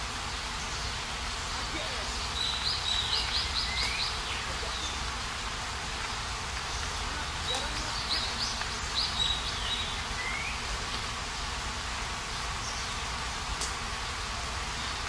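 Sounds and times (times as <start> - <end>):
waterfall rushing: 0.0 - 15.0
bird singing: 0.3 - 5.1, 6.6 - 10.8, 12.6 - 13.1.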